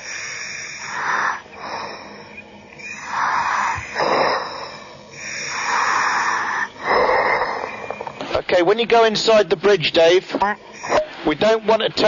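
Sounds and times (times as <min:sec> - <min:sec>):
diver breathing through apparatus: 0:00.0 - 0:08.0.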